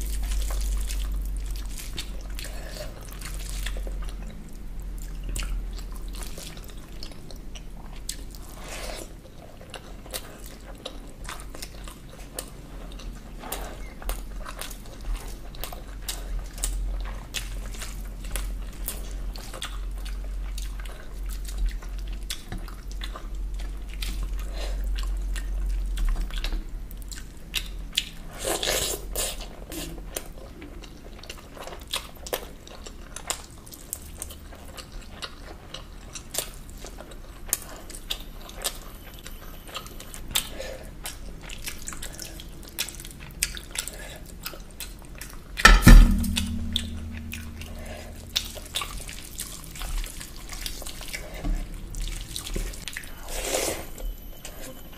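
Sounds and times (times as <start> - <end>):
loud thump: 45.7 - 48.1.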